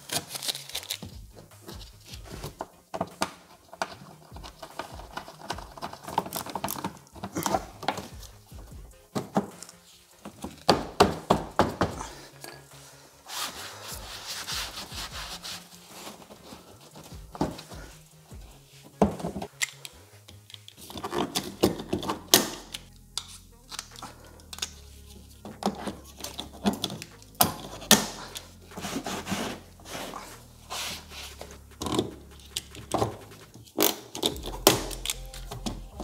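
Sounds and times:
background music with bass line: 0.0s - 36.0s
rivet pliers clicking and snapping: 19.5s - 24.9s, 33.8s - 35.7s.

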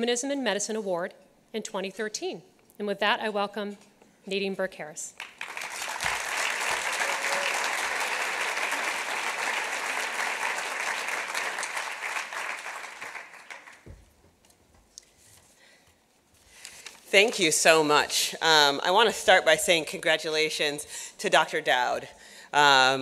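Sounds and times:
audience applauding: 5.2s - 13.9s.

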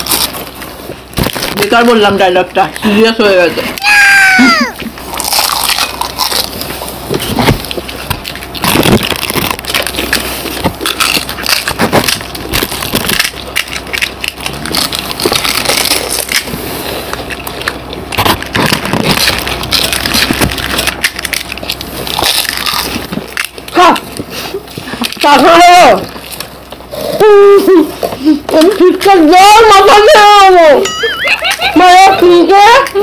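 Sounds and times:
crisp shells cracking: 0.0s - 3.0s, 3.8s - 27.2s
crunchy chewing: 0.0s - 3.1s, 3.7s - 29.1s.

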